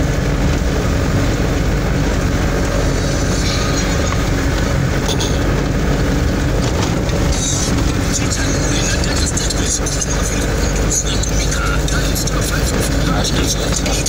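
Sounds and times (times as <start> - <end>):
vehicle body rattle: 0.0 - 14.0
vehicle engine rumble: 0.0 - 14.0.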